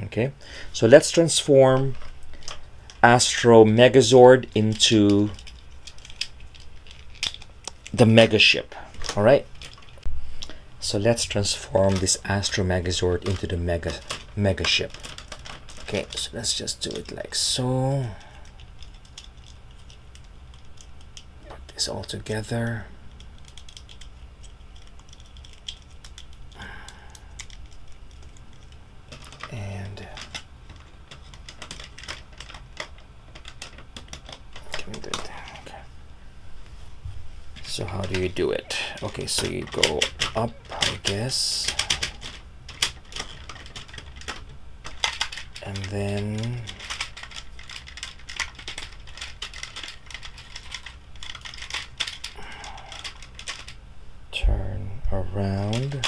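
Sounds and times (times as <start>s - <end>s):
plastic toy parts clicking: 4.4s - 8.0s, 11.3s - 17.2s, 18.4s - 22.2s, 23.1s - 35.6s, 37.8s - 53.8s.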